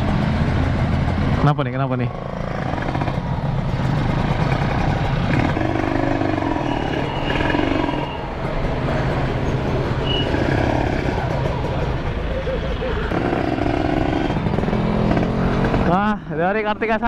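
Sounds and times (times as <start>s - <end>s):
motorcycle engine idling: 0.0s - 15.0s
street traffic: 0.0s - 17.0s.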